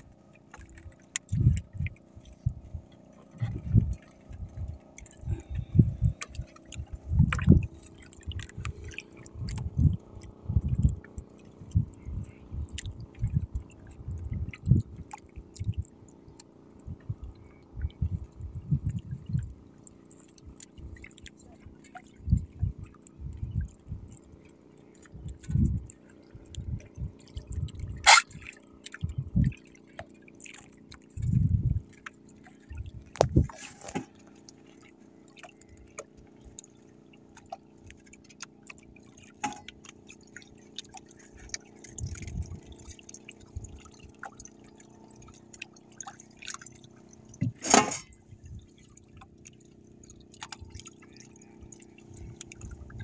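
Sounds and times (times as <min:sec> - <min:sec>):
water lapping against boat hull: 0:00.0 - 0:53.0
low thuds against hull: 0:01.3 - 0:11.0, 0:47.3 - 0:48.6.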